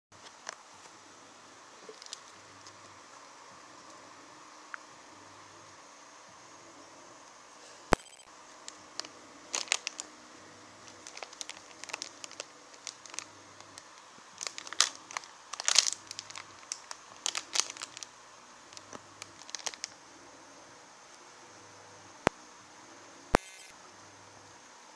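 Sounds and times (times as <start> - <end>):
plastic packets crinkling: 1.9 - 2.8, 8.7 - 10.1, 10.8 - 18.1, 18.7 - 20.0.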